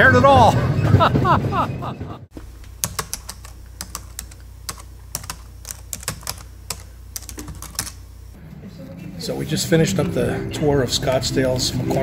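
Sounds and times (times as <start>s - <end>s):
keyboard key clicks: 2.8s - 8.0s.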